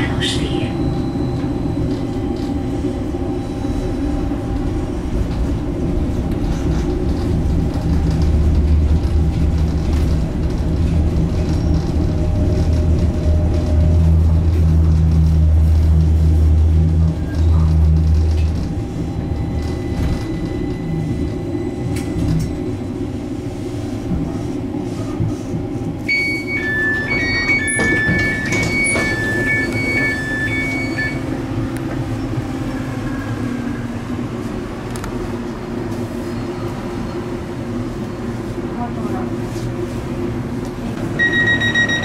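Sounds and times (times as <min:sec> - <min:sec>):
tram running low rumble: 0:00.0 - 0:42.0
two-pitch electronic beeps: 0:41.2 - 0:42.0.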